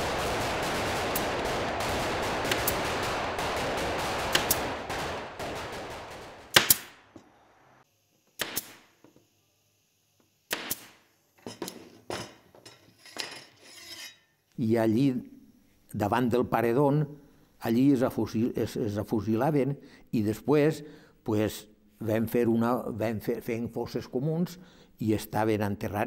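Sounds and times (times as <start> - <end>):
sharp gunshots: 0.0 - 7.1, 8.4 - 8.9
gunfire: 0.0 - 7.6.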